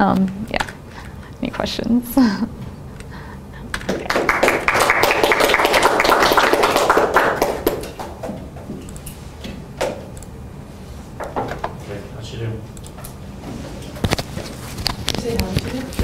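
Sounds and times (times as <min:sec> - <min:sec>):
small audience applauding: 0:03.7 - 0:08.3.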